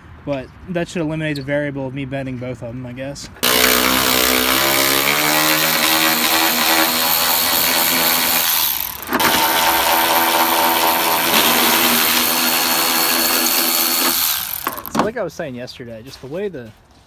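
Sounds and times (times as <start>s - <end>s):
cordless ratchet motor whining: 3.4s - 15.0s.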